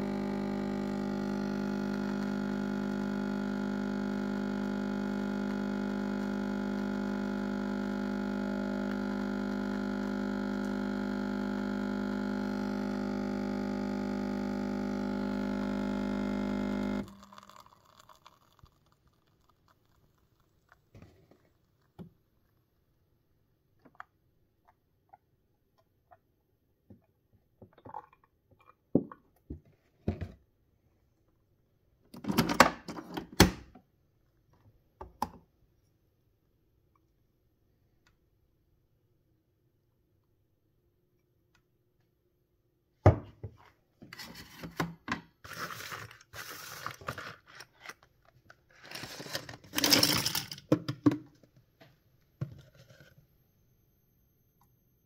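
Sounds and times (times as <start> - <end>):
coffee machine humming: 0.0 - 19.9, 44.2 - 47.7, 48.8 - 50.8.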